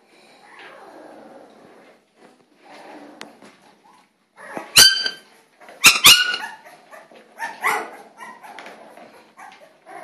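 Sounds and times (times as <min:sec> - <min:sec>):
puppy yelping: 0:04.4 - 0:10.0.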